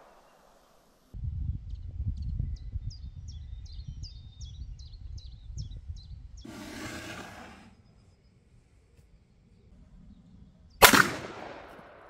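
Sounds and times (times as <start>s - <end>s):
wind buffeting microphone: 1.2s - 6.5s.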